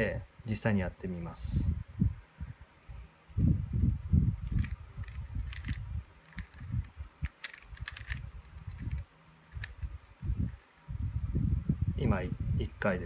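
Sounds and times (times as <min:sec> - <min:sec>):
puzzle cube layers clicking: 0:04.5 - 0:10.7.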